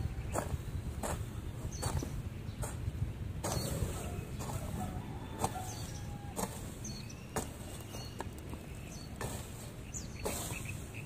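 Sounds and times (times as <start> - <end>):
hoe chopping into soil: 3.4 - 4.8, 5.4 - 7.7, 9.1 - 10.8.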